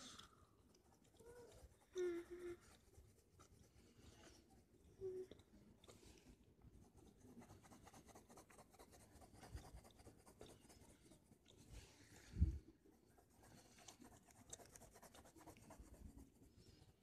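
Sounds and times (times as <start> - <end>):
crayon scratching on paper: 0.8 - 1.9, 6.7 - 11.7, 13.0 - 16.9.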